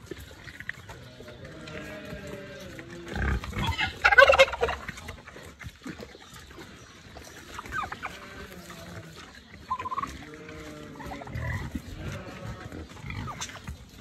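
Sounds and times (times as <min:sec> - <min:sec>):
faint animal noises: 0:00.0 - 0:14.0
farm animal stuttering call: 0:01.3 - 0:05.3, 0:07.5 - 0:13.7.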